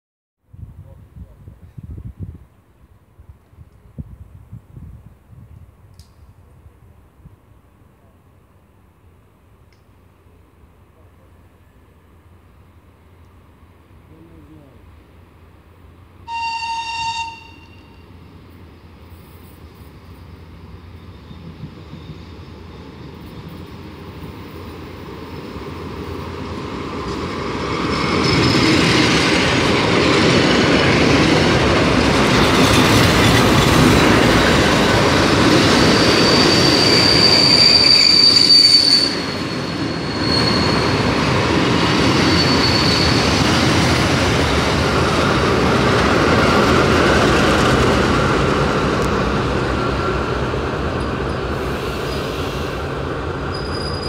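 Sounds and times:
train rumbling past: 6.0 - 54.0
train horn blast: 16.3 - 18.1
high wheel squeal: 35.8 - 41.2, 42.2 - 43.4, 53.5 - 54.0.

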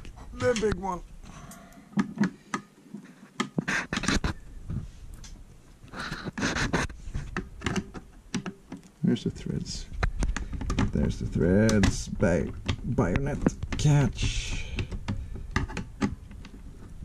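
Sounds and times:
hand tools clicking and knocking on desk: 1.9 - 4.8, 5.9 - 8.8, 10.0 - 17.0
tool scraping: 3.0 - 4.9, 5.9 - 8.0.

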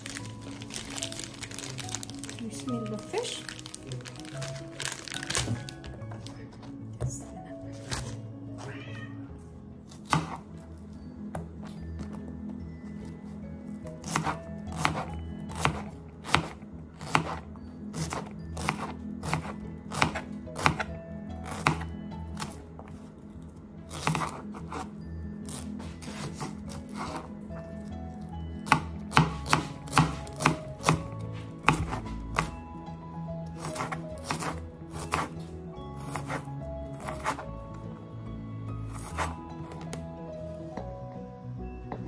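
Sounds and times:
knife chopping on cutting board: 10.0 - 10.4, 14.0 - 17.4, 18.0 - 20.9, 23.9 - 24.9, 28.7 - 32.5, 33.6 - 35.4, 36.0 - 37.4.

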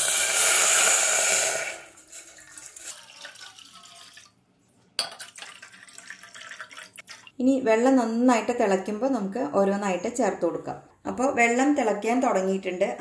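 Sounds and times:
water pouring into a pan: 0.0 - 4.4, 5.2 - 7.3.

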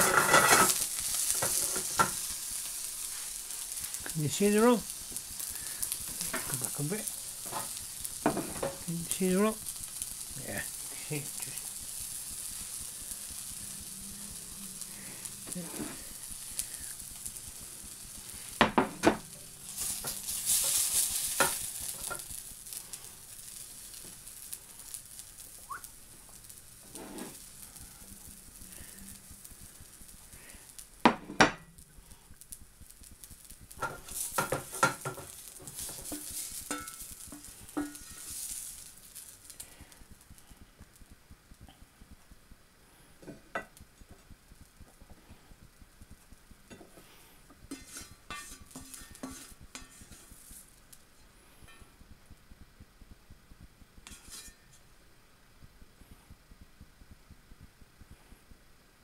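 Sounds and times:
spatula scraping and knocking pan: 0.0 - 4.1, 5.0 - 8.9, 14.6 - 22.4, 33.7 - 39.6, 46.7 - 50.7, 54.0 - 54.8
food sizzling in a frying pan: 0.0 - 59.0.

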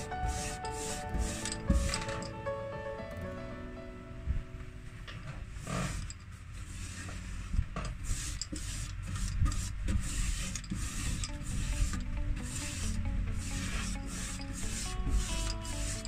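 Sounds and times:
paintbrush strokes on wood: 0.0 - 2.3, 5.6 - 16.0.

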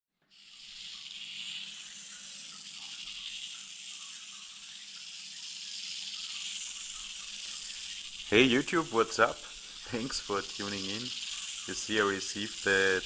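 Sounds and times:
toy car motor whirring: 0.2 - 13.0.

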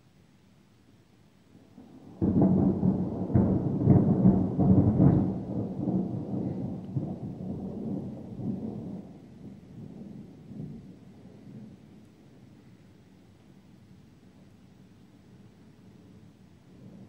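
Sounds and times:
thunder peal and rumble: 1.8 - 12.3.

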